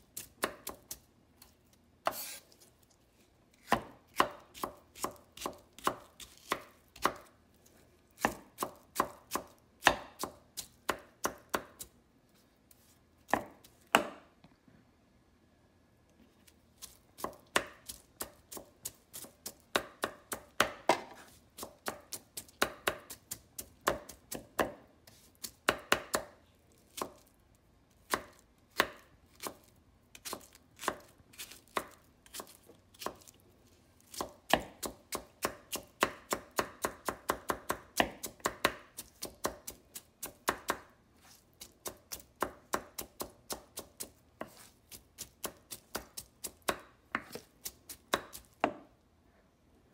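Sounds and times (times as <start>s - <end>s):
knife chopping on wooden board: 2.0s - 2.4s, 3.6s - 7.3s, 8.2s - 11.9s, 13.3s - 14.2s, 16.8s - 26.3s, 26.9s - 27.3s, 28.0s - 33.3s, 34.1s - 48.9s.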